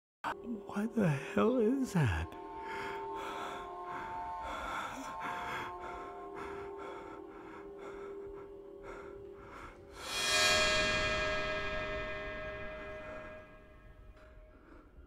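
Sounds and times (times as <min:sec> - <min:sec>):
eerie music with held tones: 0:00.3 - 0:15.0
quick rhythmic breathing: 0:02.6 - 0:10.2.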